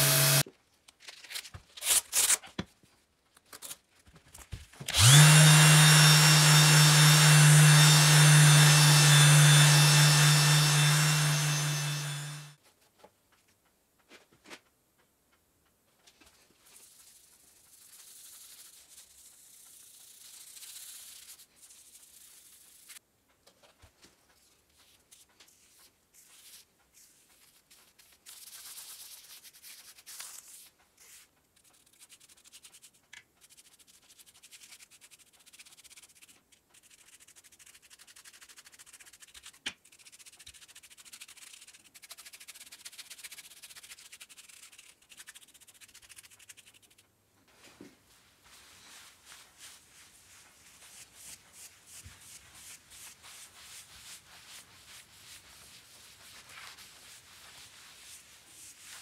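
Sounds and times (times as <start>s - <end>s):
sandpaper rubbing a hard surface: 5.0s - 12.5s, 16.7s - 23.0s, 26.2s - 32.8s, 33.4s - 47.0s, 48.4s - 59.0s.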